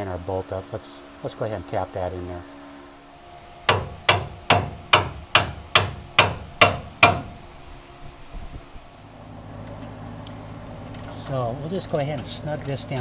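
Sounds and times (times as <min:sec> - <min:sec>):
hammer tapping a bolt: 0:03.7 - 0:07.2.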